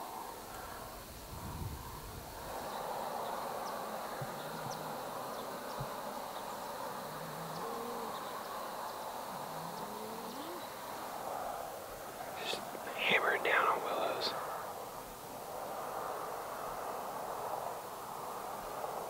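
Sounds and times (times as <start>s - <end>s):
low soft hooting calls: 0.0s - 18.9s
steady hiss: 0.0s - 19.0s.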